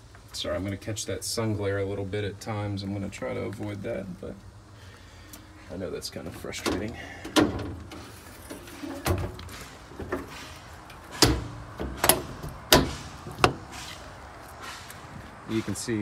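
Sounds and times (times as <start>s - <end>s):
truck compartment doors slamming: 6.4s - 14.0s
metal latch clacks: 10.9s - 13.6s.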